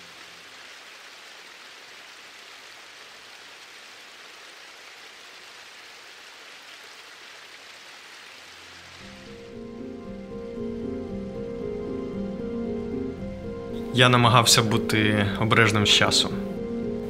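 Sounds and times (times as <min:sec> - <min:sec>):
rushing hiss of water: 0:00.0 - 0:09.5
soft music with held notes: 0:09.0 - 0:17.0.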